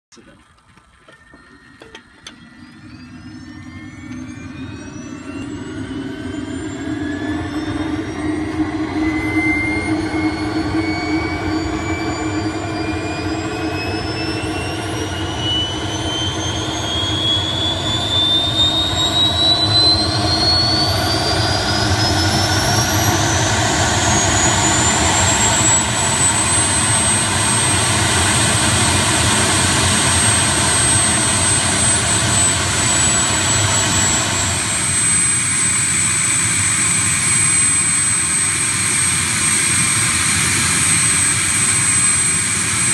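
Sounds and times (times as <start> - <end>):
jet turbine whine: 0.1 - 42.9.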